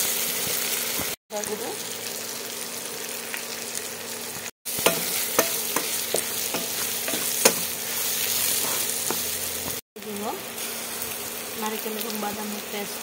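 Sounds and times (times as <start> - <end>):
food sizzling in oil: 0.0 - 13.0
wooden spatula knocking on pan: 4.8 - 7.7.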